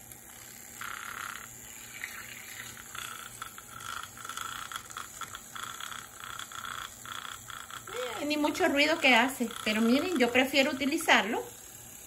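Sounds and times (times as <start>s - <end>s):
milk frother whirring: 0.0s - 12.0s.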